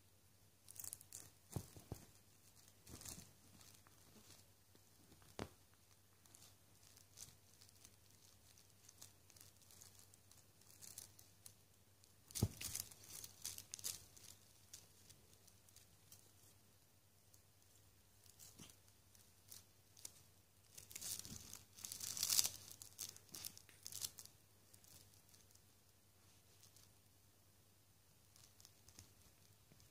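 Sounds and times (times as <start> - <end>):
blanket rustling and scratching: 0.7 - 11.3.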